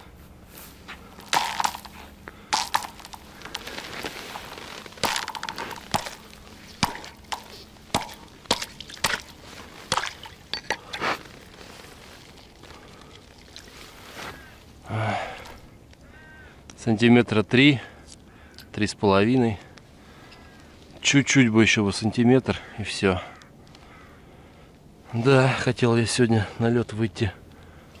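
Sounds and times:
ice being struck and cracking: 0:01.2 - 0:11.5
water sloshing: 0:01.2 - 0:14.8.

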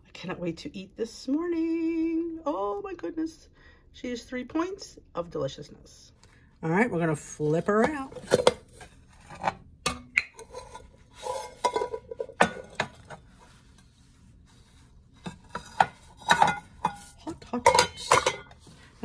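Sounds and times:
kitchenware knocking and scraping: 0:07.7 - 0:13.2, 0:15.2 - 0:18.8.

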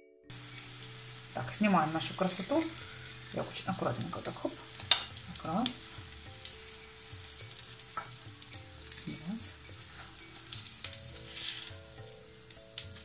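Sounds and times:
patties sizzling in hot oil: 0:00.3 - 0:13.0
spatula scraping a pan: 0:09.7 - 0:12.0.

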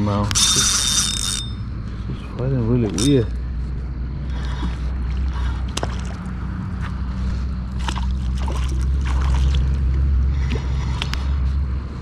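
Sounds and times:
steady low rumble: 0:00.0 - 0:12.0
fish splashing in water: 0:04.4 - 0:10.8.

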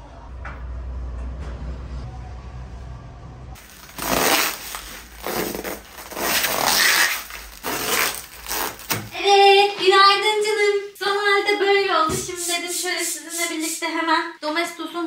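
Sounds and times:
bubble wrap rustling and crinkling: 0:03.6 - 0:09.2.

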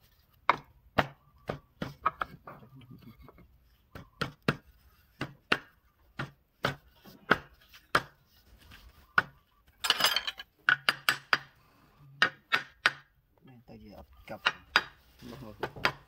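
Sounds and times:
sharp wooden knocks: 0:00.4 - 0:02.7, 0:03.9 - 0:08.2, 0:10.6 - 0:11.5, 0:12.2 - 0:13.2, 0:14.3 - 0:15.0, 0:15.6 - 0:16.0.

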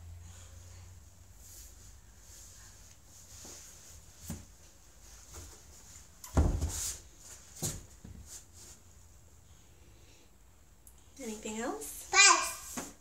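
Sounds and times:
hand slapping wall chart: 0:12.6 - 0:13.0.

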